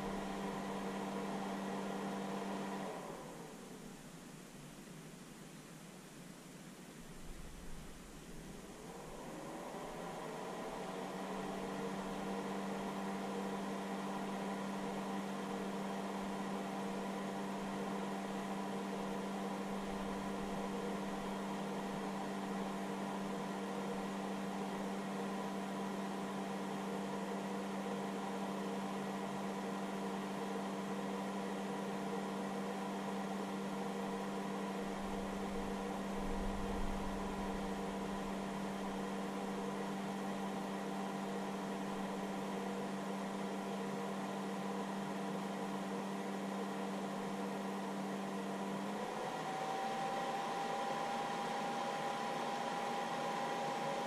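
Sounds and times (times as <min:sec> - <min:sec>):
cooling fan humming: 0:05.8 - 0:54.0.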